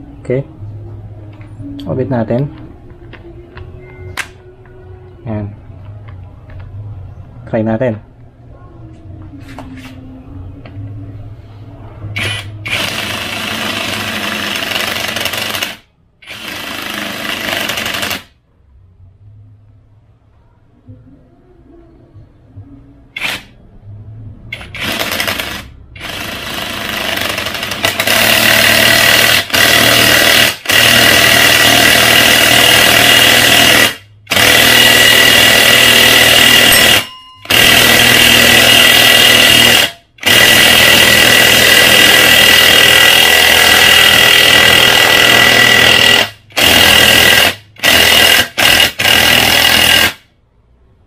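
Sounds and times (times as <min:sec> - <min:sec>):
impact wrench hammering: 0:12.2 - 0:18.3, 0:24.5 - 0:50.2.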